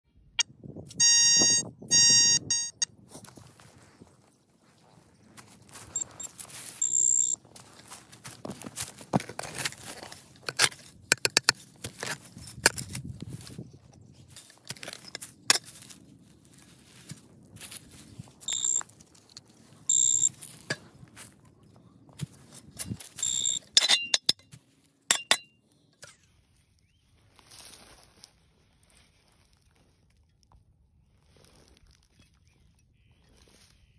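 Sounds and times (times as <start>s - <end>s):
short high beeps: 0.9s - 2.9s, 6.0s - 7.4s, 18.5s - 18.8s, 19.9s - 20.4s, 23.2s - 23.6s
shovel digging into soil: 5.9s - 21.3s, 22.2s - 24.5s.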